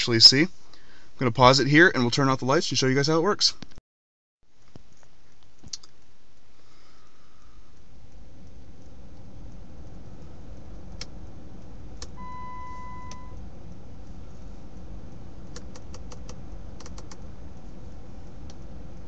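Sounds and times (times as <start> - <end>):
low steady rumble: 4.4 - 19.0
electronic beep: 12.2 - 13.4
switches clicking: 15.5 - 17.2.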